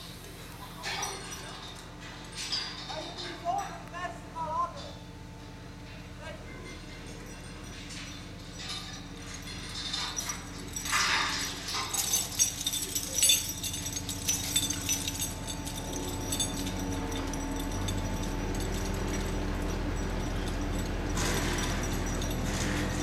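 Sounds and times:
metallic chain clinks and rattles: 0:00.8 - 0:03.8, 0:05.8 - 0:23.0
low engine hum: 0:13.9 - 0:23.0.

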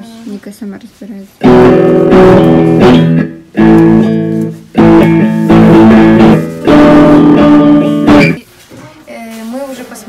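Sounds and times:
electric guitar chords ringing: 0:01.4 - 0:08.4.

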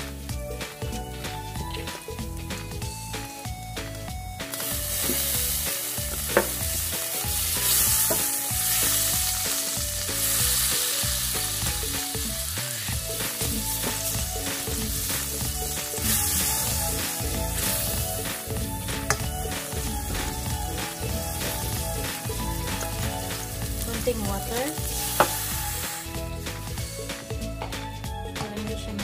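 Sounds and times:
sauce sizzling in a pan: 0:04.4 - 0:26.9.

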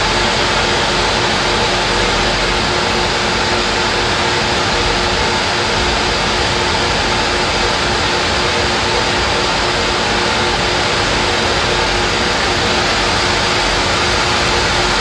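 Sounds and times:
small engine whirring: 0:00.0 - 0:15.0.

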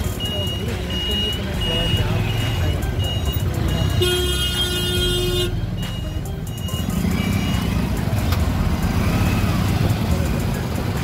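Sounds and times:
engines idling: 0:00.0 - 0:11.0
vehicle horn honk: 0:03.9 - 0:05.6.

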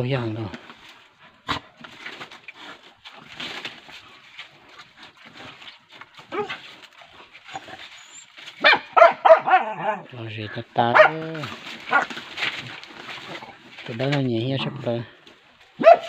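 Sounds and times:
dogs scuffling on gravel and leaves: 0:00.0 - 0:09.6, 0:10.2 - 0:16.0
dog growls and whimpers: 0:06.2 - 0:08.4, 0:09.4 - 0:10.1.

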